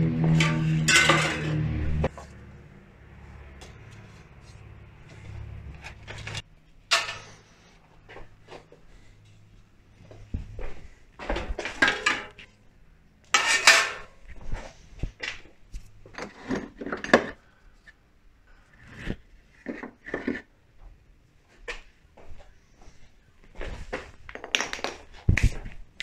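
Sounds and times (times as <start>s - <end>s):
metal bicycle parts clattering: 0.1s - 2.3s, 5.1s - 7.7s, 11.3s - 12.6s, 13.2s - 14.5s.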